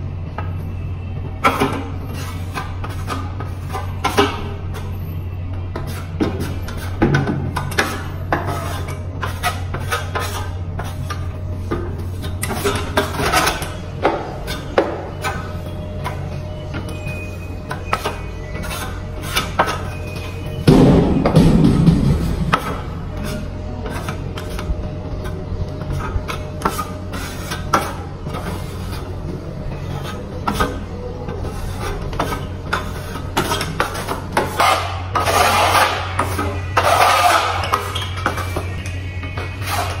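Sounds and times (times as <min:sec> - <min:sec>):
steady low hum: 0:00.0 - 0:40.0
trowel scraping plaster: 0:05.8 - 0:13.8, 0:17.7 - 0:20.4, 0:22.5 - 0:29.2, 0:31.4 - 0:38.8.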